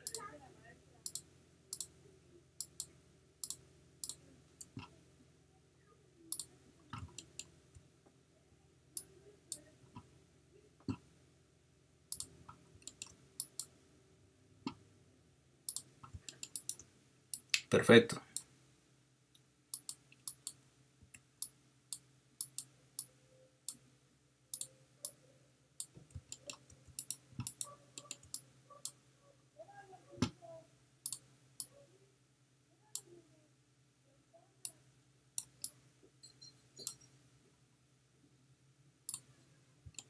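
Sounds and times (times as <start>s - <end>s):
computer mouse clicking: 0.0s - 0.2s, 1.0s - 2.0s, 2.6s - 4.9s, 6.3s - 7.6s, 9.0s - 10.1s, 12.1s - 13.8s, 15.7s - 17.7s, 19.3s - 23.1s, 24.5s - 25.2s, 25.8s - 29.0s, 31.0s - 31.8s, 35.4s - 37.1s, 39.1s - 39.3s
faint low hum: 0.0s - 40.0s.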